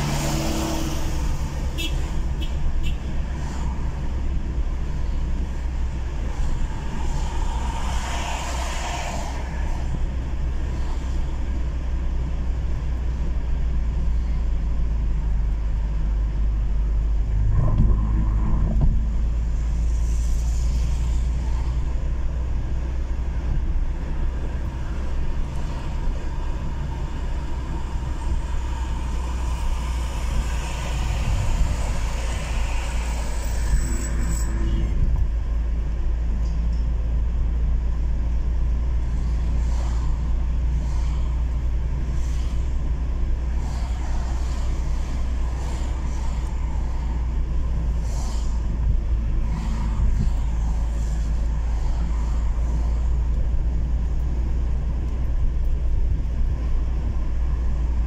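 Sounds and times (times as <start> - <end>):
car road rumble from inside: 0.0 - 58.0.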